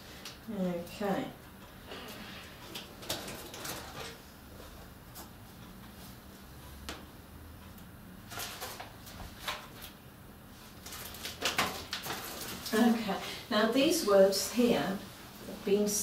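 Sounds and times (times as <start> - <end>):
paper sheets rustling: 10.7 - 13.1.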